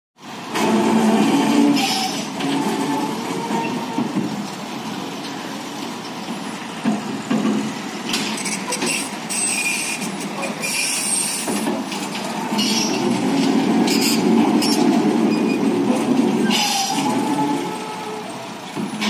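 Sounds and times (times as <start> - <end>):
heavy truck rumbling past: 0.2 - 9.3, 11.4 - 19.0
high-pitched squeals: 13.9 - 18.5.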